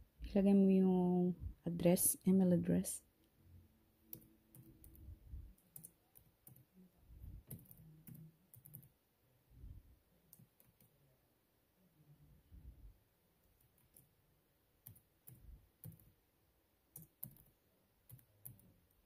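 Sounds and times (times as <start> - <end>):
faint laptop keyboard typing: 4.0 - 9.1, 10.1 - 11.1, 13.4 - 16.3, 16.9 - 19.0.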